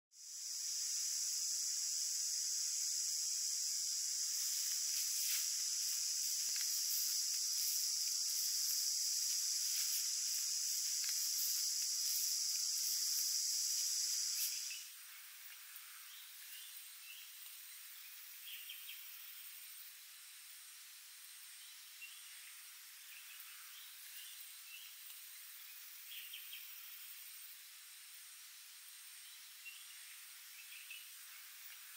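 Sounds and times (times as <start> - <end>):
quiet outdoor background: 0.1 - 31.9
insect chorus drone: 0.2 - 31.9
faint ticks: 4.5 - 14.8, 17.4 - 17.6, 25.0 - 25.3.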